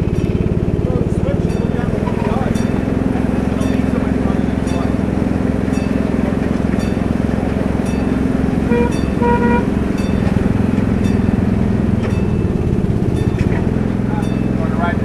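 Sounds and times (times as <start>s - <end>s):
engine running: 0.0s - 15.0s
horn toots: 8.6s - 10.5s.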